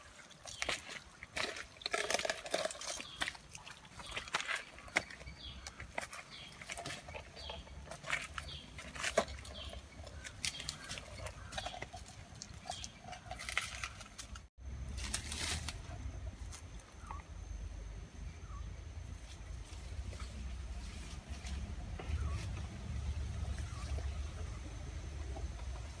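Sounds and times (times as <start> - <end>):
flip-flop footsteps on wet stones: 0.0 - 15.6
leaves and undergrowth rustling: 0.0 - 17.2, 19.0 - 26.0.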